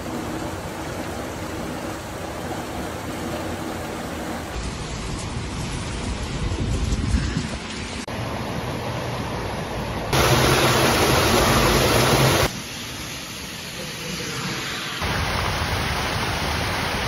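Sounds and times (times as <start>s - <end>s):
water pouring into storm drain: 10.2s - 17.0s.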